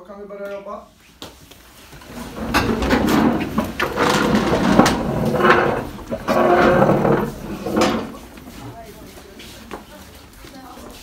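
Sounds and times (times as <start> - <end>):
chairs scraping and knocking: 1.9 - 8.8
shuffling feet: 3.4 - 11.0.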